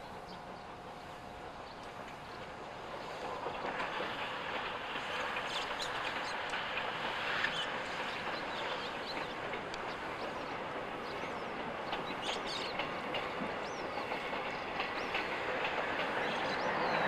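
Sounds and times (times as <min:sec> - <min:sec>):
distant train running on rails: 0:00.0 - 0:17.0.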